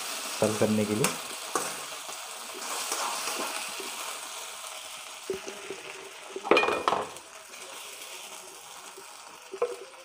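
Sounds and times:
chicken sizzling in a pan: 0.0 - 10.0
spatula scraping a pan: 2.6 - 3.9.

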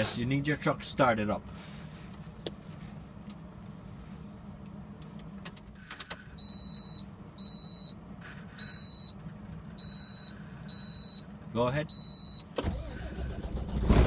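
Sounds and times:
dashboard warning beeps: 6.2 - 12.8.

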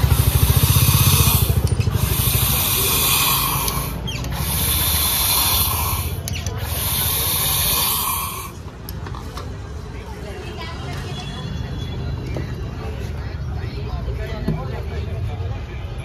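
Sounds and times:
low rapid throbbing: 0.0 - 8.5
gas hissing into a bottle: 0.0 - 8.7.

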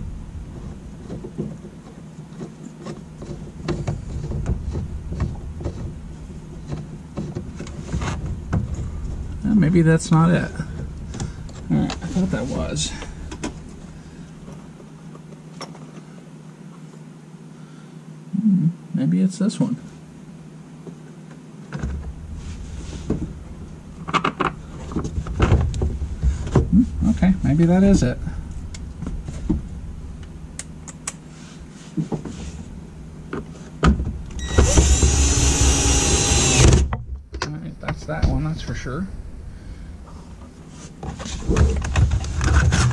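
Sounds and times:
low background hum with hiss: 0.0 - 42.9
cordless drill whirring: 34.4 - 36.8.

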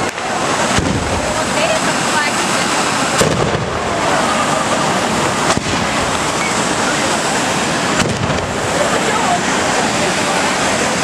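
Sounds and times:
sharp cracks: 0.0 - 1.4, 3.1 - 4.0, 5.4 - 6.4, 7.9 - 8.6
fireworks fountains hissing: 0.0 - 11.0.

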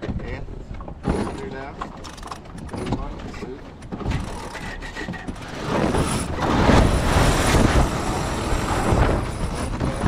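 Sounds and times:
sails shaking: 0.0 - 10.0
wind rushing over microphone: 5.3 - 10.0.

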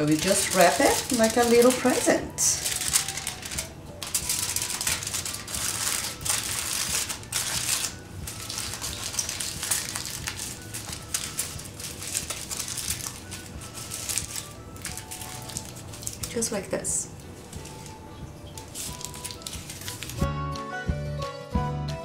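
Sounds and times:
aluminium foil crinkling: 0.0 - 20.3.

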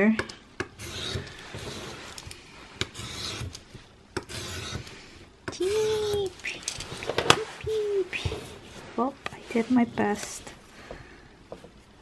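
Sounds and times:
knife blade scraping paper: 0.8 - 3.7, 4.3 - 5.0.

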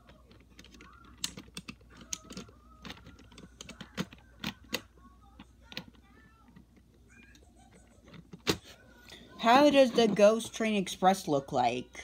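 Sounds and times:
plastic bricks clicking: 0.0 - 4.9.

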